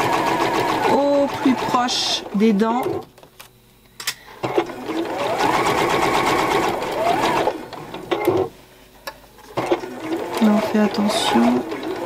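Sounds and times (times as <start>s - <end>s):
sewing machine stitching: 0.0s - 2.2s, 4.4s - 8.5s, 9.5s - 12.0s.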